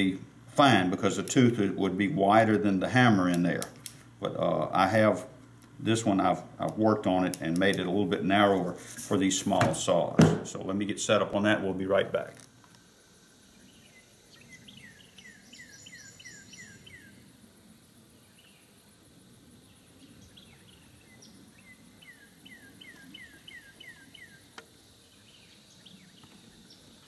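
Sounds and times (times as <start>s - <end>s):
insects buzzing: 0.0s - 27.0s
songbird whistling: 13.8s - 17.2s, 20.4s - 24.5s.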